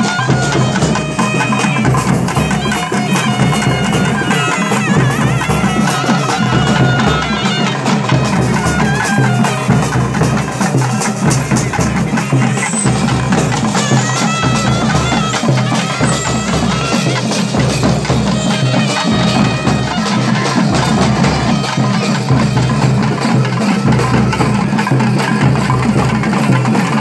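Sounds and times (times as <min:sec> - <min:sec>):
high wavering melody: 0:00.0 - 0:26.8
clattering percussion: 0:00.0 - 0:27.0
drums beating steady rhythm: 0:00.0 - 0:27.0.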